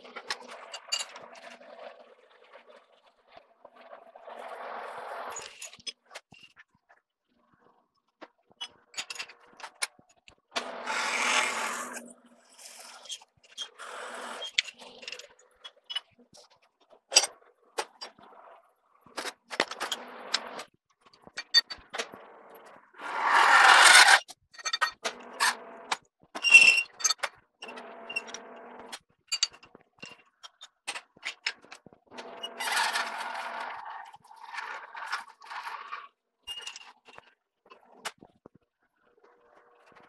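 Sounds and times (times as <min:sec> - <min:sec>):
drill scraping into steel: 0:10.6 - 0:14.6, 0:23.0 - 0:24.2.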